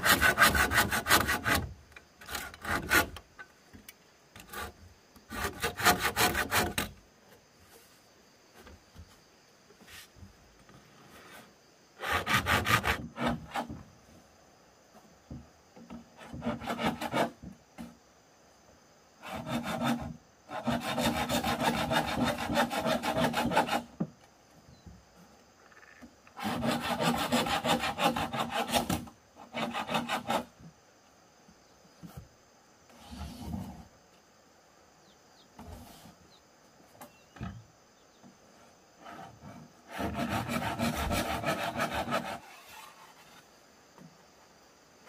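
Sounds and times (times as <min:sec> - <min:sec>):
hand tool rasping on bamboo: 0:00.0 - 0:03.2, 0:05.3 - 0:06.9, 0:12.0 - 0:13.8, 0:16.2 - 0:17.4, 0:19.2 - 0:23.9, 0:26.4 - 0:30.6, 0:39.0 - 0:43.4.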